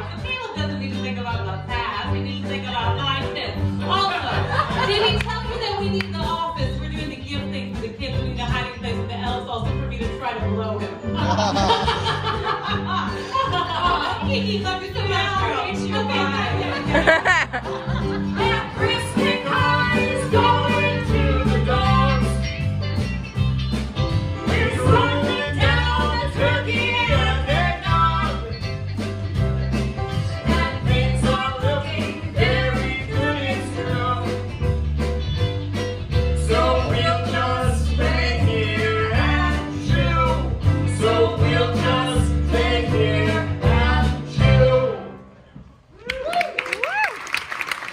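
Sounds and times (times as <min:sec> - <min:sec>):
live band playing: 0:00.0 - 0:45.1
man and woman singing duet: 0:11.0 - 0:22.5, 0:24.4 - 0:28.6, 0:30.2 - 0:34.5, 0:36.3 - 0:45.2.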